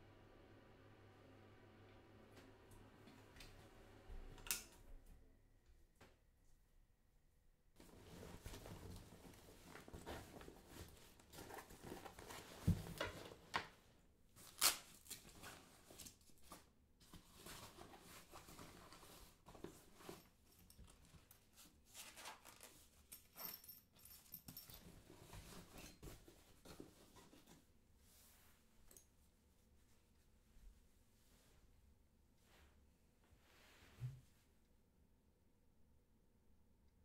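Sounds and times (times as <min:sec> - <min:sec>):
rustling and handling noises: 0:07.8 - 0:34.6.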